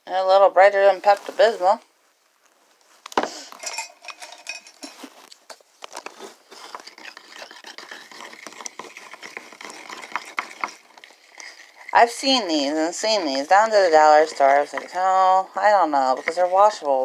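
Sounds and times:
stick scraping paint in bottle: 5.9s - 17.0s.

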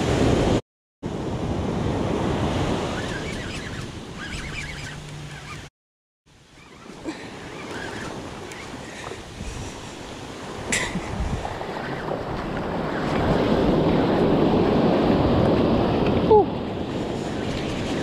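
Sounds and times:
wind buffeting microphone: 6.8s - 18.0s
surf washing onto beach: 6.9s - 18.0s.

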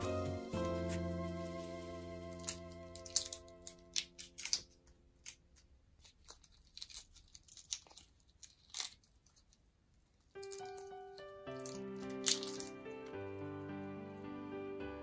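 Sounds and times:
background music: 0.0s - 4.3s, 10.4s - 15.0s
shrimp shells peeling by hand: 2.3s - 12.9s.

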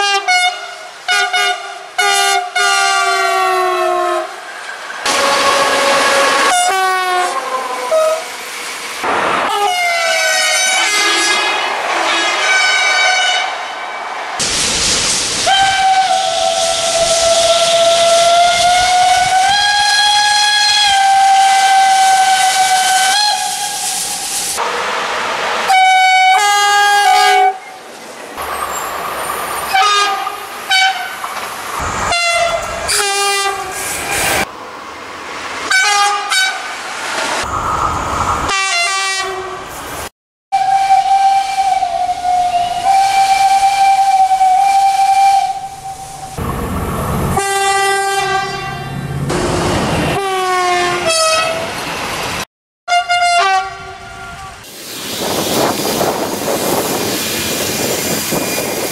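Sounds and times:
steam locomotive whistle: 0.0s - 4.4s, 5.0s - 8.3s, 9.5s - 14.0s, 15.4s - 24.7s, 25.7s - 27.7s, 29.7s - 31.2s, 32.1s - 33.8s, 38.5s - 39.6s, 40.6s - 46.4s, 47.4s - 48.9s, 50.1s - 51.7s, 52.9s - 54.6s, 55.2s - 58.9s
two-note locomotive horn blasts: 5.1s - 8.2s, 40.6s - 46.2s, 47.4s - 49.0s, 50.1s - 51.7s, 52.9s - 54.5s
long steady horn note: 9.6s - 13.6s, 40.6s - 46.0s, 47.4s - 49.0s, 52.9s - 54.1s
steam hissing: 14.4s - 20.4s, 21.0s - 24.6s, 54.6s - 58.9s.

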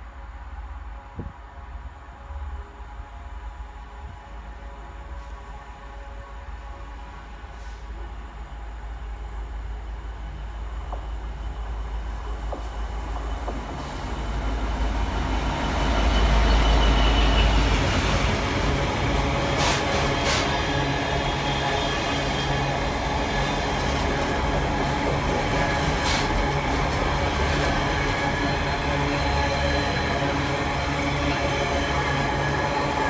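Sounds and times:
diesel locomotive engine rumble: 0.0s - 33.0s
train wheels rolling on rail: 7.3s - 33.0s.

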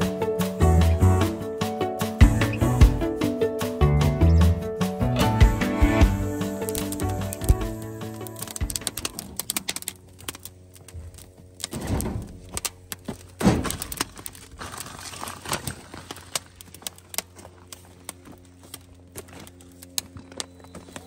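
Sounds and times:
wood fire crackling: 5.1s - 21.0s.

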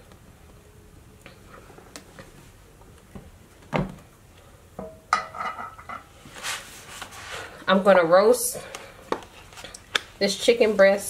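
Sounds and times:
kitchenware knocking and clinking: 4.8s - 6.1s.

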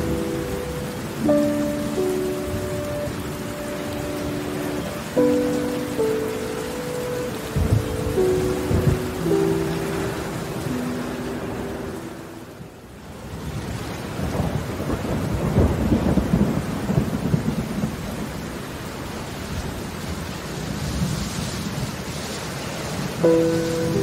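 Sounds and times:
steady rain: 0.0s - 24.0s
thunder rumbling: 7.4s - 11.8s, 13.3s - 18.8s.

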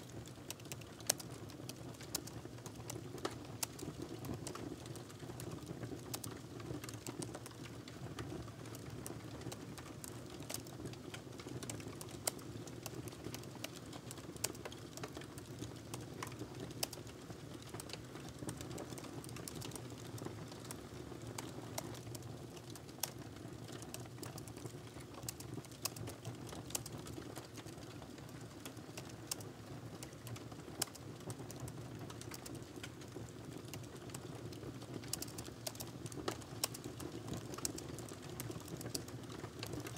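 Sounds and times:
laptop keyboard typing: 23.8s - 26.0s, 35.0s - 39.9s.

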